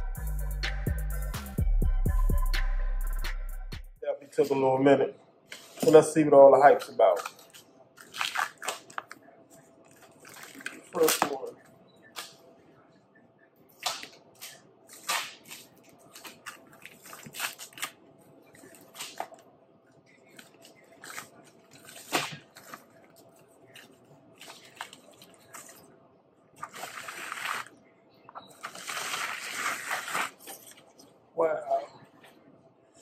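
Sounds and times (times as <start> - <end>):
paper wrapping crinkling: 6.7 - 11.6, 14.4 - 19.5, 20.1 - 26.0, 26.6 - 27.8, 28.5 - 31.1.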